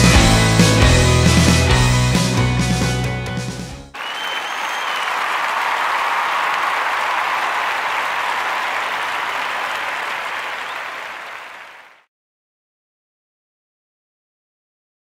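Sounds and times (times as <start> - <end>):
crowd applause: 4.0 - 12.0.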